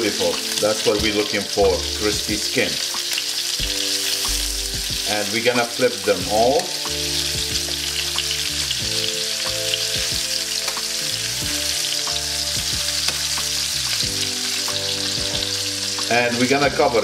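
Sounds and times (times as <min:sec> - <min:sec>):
chicken sizzling in hot oil: 0:00.0 - 0:17.0.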